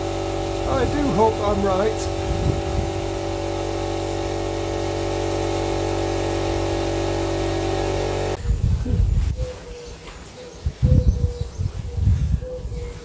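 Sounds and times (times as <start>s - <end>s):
air compressor running: 0.0s - 8.4s.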